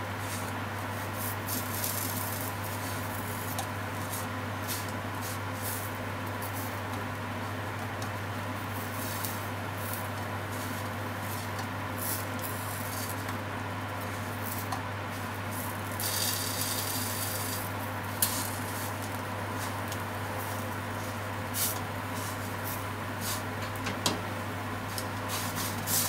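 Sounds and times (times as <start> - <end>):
meat sizzling in frying pan: 15.2 - 21.7.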